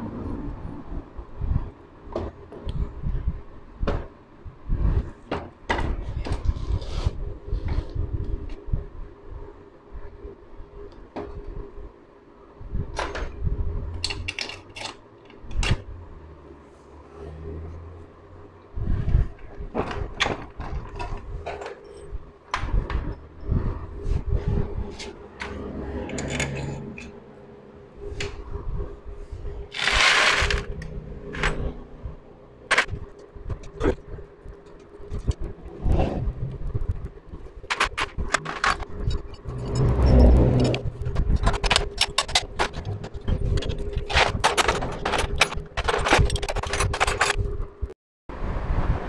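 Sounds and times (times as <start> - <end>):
metal clicks and knocks of tools: 14.0 - 15.8, 37.7 - 47.6.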